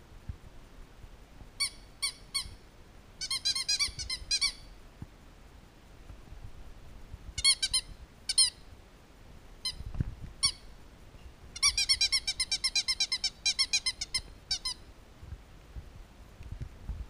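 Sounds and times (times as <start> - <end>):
puppies squeaking: 3.2 - 4.7, 7.4 - 8.6, 11.6 - 14.8.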